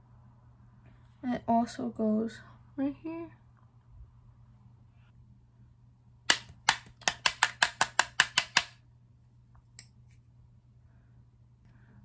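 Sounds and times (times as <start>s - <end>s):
brush tapping hard surface: 6.3s - 8.8s.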